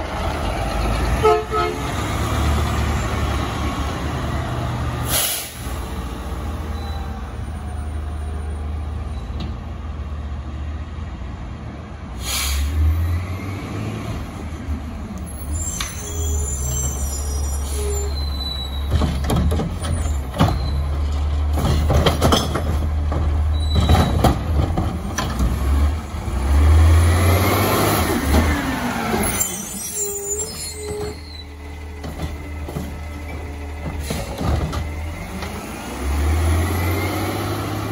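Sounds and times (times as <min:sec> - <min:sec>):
garbage truck engine: 0:00.0 - 0:11.1, 0:12.2 - 0:37.9
air brake hiss: 0:05.0 - 0:05.8, 0:12.2 - 0:12.9.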